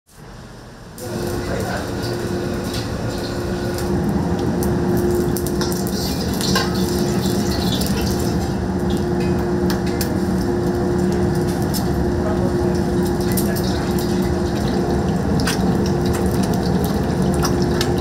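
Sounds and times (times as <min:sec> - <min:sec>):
steady kitchen hum: 0:00.1 - 0:18.0
utensils clinking against pans: 0:05.4 - 0:10.1, 0:13.2 - 0:14.8.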